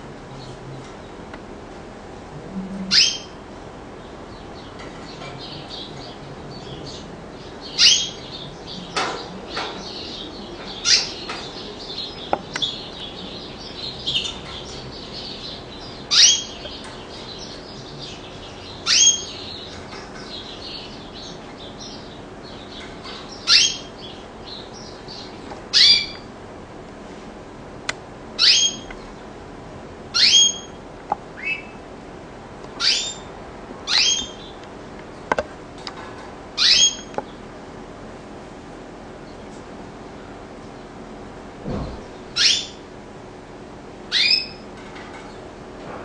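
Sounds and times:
canary twittering: 0:02.9 - 0:03.4, 0:04.3 - 0:26.3, 0:28.4 - 0:28.9, 0:30.1 - 0:30.8, 0:31.4 - 0:31.8, 0:32.8 - 0:34.6, 0:36.6 - 0:37.1, 0:42.2 - 0:42.8, 0:44.1 - 0:44.7.

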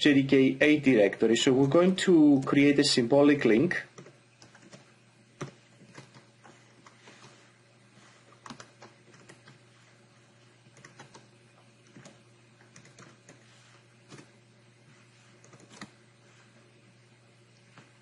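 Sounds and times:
typing on computer keyboard: 0:03.9 - 0:06.3, 0:08.4 - 0:09.6, 0:10.7 - 0:13.4, 0:14.1 - 0:14.4, 0:15.4 - 0:16.0.

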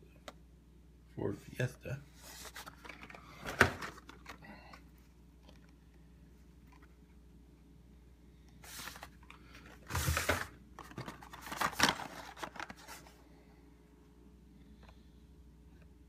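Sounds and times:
card rustling: 0:02.1 - 0:05.8, 0:08.6 - 0:13.2
plastic packaging crinkling: 0:08.7 - 0:13.1.

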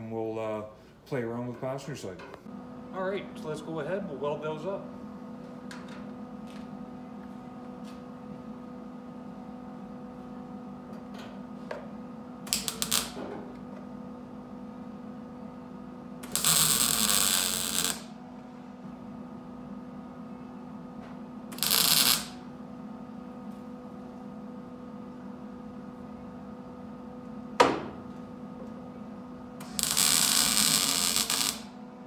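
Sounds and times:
steady electrical hum: 0:00.0 - 0:32.0
welder welding sheet metal: 0:12.4 - 0:13.3, 0:16.2 - 0:18.1, 0:21.5 - 0:22.4, 0:29.6 - 0:31.8.

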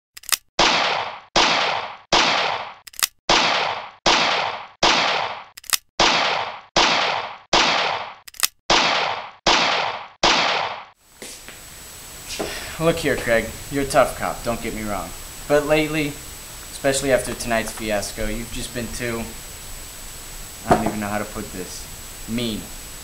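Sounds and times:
gunshot sound effects: 0:00.6 - 0:11.0, 0:20.7 - 0:21.1
short sharp clicks: 0:05.6 - 0:05.9.

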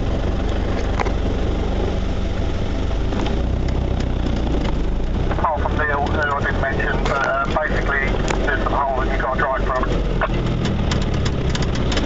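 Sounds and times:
car engine humming: 0:00.0 - 0:12.0
bodywork knocks and rattles: 0:10.3 - 0:12.0.

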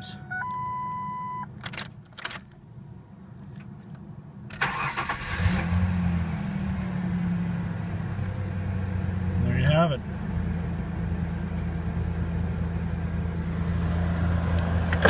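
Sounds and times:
dashboard chime: 0:00.0 - 0:01.4
ignition clicks: 0:04.5 - 0:05.7
engine cranking then idling: 0:04.6 - 0:05.6.

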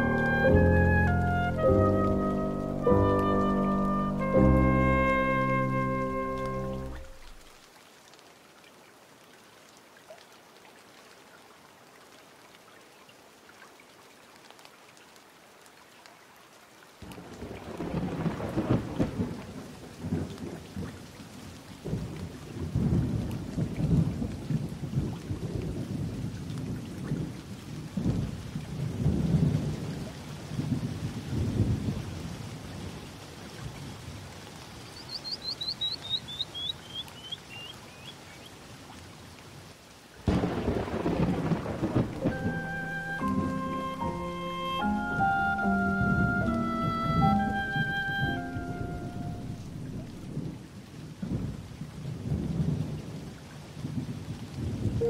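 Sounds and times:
rain hissing: 0:00.0 - 0:07.7, 0:17.0 - 0:20.9, 0:33.6 - 0:38.6, 0:40.2 - 0:51.5
rolling thunder: 0:17.0 - 0:20.9, 0:40.3 - 0:44.3, 0:48.5 - 0:55.0
high chirps falling in pitch: 0:34.9 - 0:38.4, 0:42.2 - 0:49.6.

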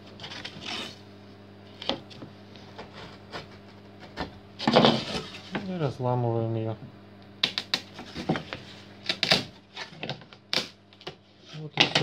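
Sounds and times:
low steady hum: 0:00.0 - 0:12.0
knife scraping wood: 0:00.1 - 0:01.0, 0:01.7 - 0:05.6.

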